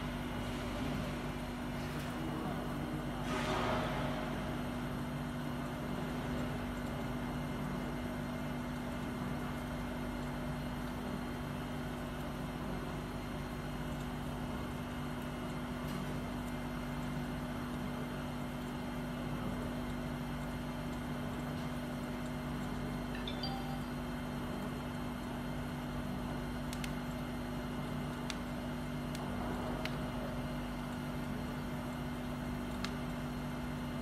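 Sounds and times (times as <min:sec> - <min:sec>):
machine hum: 0:21.3 - 0:34.0.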